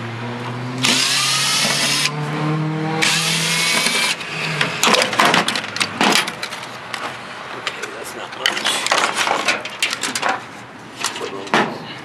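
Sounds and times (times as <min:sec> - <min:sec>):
cordless drill running: 0:00.8 - 0:02.1, 0:03.0 - 0:04.2.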